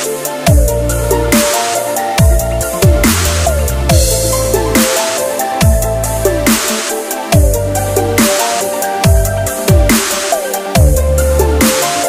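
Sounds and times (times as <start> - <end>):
electronic music: 0.0 - 12.0
deep sliding bass notes: 2.2 - 4.9.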